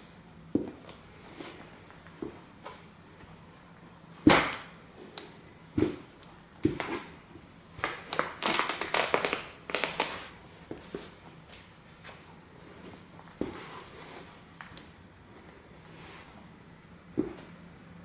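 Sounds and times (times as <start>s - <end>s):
rustling and scuffing of fabric: 10.0s - 14.6s.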